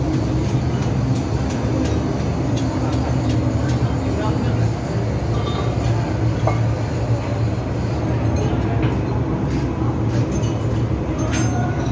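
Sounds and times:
engine-room machinery drone: 0:00.0 - 0:11.9.

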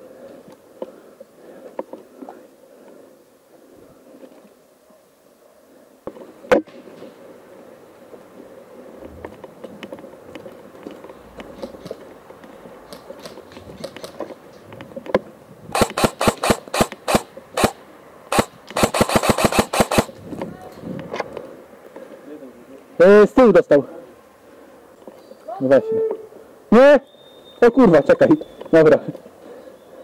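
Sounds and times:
rustling on forest floor: 0:00.0 - 0:23.0
airsoft rifle shots: 0:15.7 - 0:20.2.

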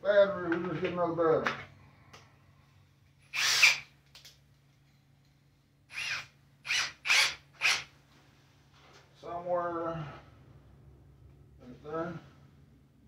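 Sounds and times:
cordless drill boring into plywood: 0:03.2 - 0:03.9, 0:05.9 - 0:07.9.

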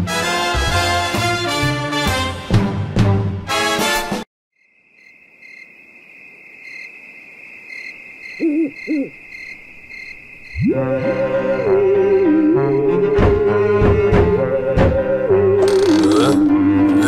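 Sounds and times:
music: 0:00.0 - 0:04.3, 0:10.6 - 0:17.0
crickets chirring: 0:04.6 - 0:13.1
owl hooting: 0:08.2 - 0:09.5.

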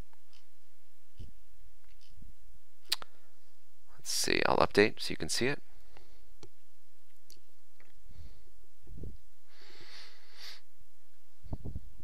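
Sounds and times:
low electrical hum: 0:00.0 - 0:12.0
computer mouse clicks: 0:01.2 - 0:02.2
person breathing out: 0:09.5 - 0:10.7.

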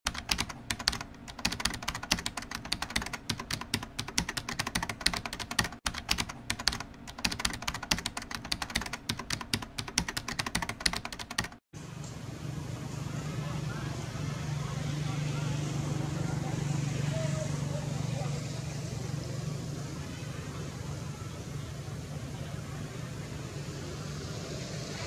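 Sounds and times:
rapid keyboard typing: 0:00.1 - 0:11.6.

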